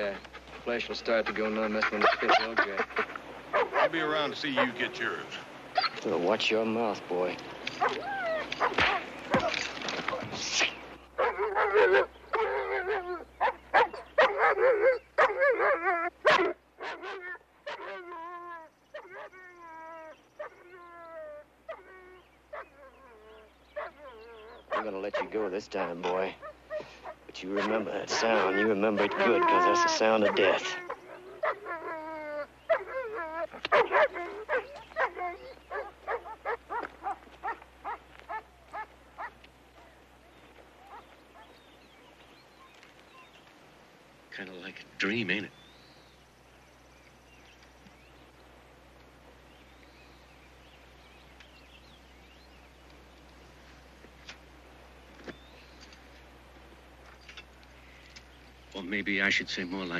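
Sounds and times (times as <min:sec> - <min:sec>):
dog barking and snarling: 0:01.7 - 0:04.9, 0:07.7 - 0:19.5, 0:21.7 - 0:39.4.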